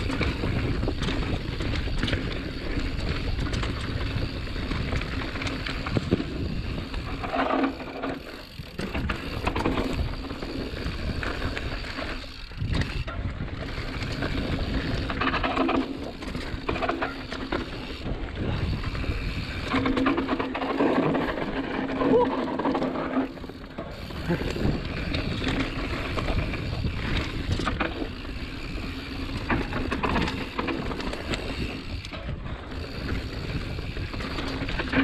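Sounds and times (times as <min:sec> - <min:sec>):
wind on microphone: 0:00.0 - 0:07.7, 0:17.6 - 0:22.7
bike rattling over bumps: 0:00.0 - 0:35.0
tyres rolling and skidding on dirt: 0:00.0 - 0:35.0.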